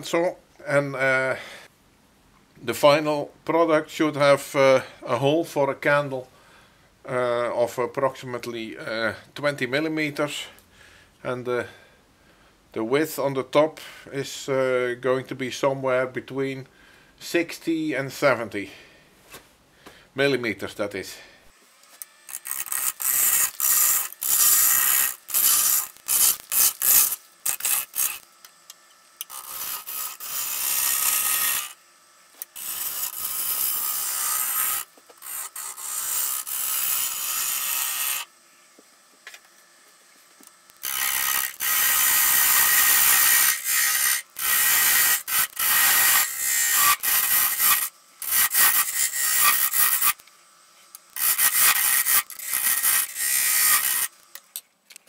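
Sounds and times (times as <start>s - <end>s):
lathe tool cutting wood: 22.3s - 28.2s, 29.3s - 31.8s, 32.5s - 38.3s, 40.8s - 50.2s, 51.2s - 54.1s.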